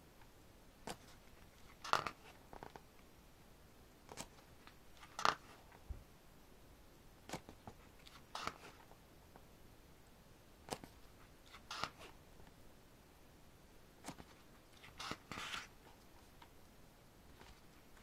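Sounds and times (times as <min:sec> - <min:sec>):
book pages turning: 0:00.9 - 0:02.8, 0:07.3 - 0:08.9, 0:10.7 - 0:12.2, 0:14.0 - 0:16.3.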